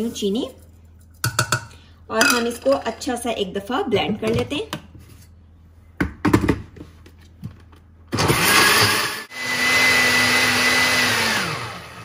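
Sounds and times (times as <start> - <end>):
blender motor whine: 8.1 - 12.0.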